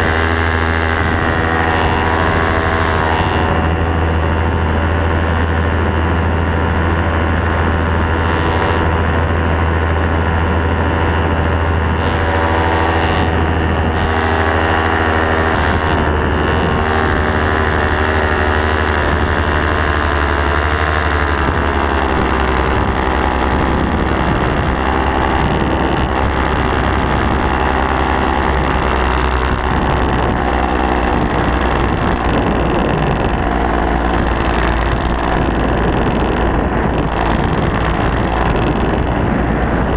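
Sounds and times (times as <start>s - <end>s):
paramotor engine and propeller: 0.0s - 39.9s
wind on microphone: 0.0s - 39.9s.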